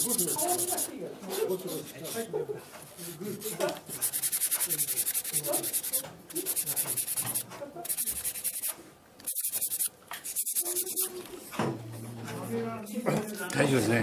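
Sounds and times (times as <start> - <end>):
sanding wood: 0.0 - 2.3, 3.0 - 11.2.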